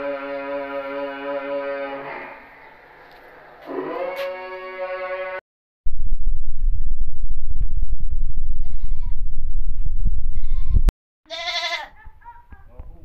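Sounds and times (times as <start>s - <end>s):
heavy low rumble: 5.9s - 10.9s
goats bleating: 11.3s - 12.0s.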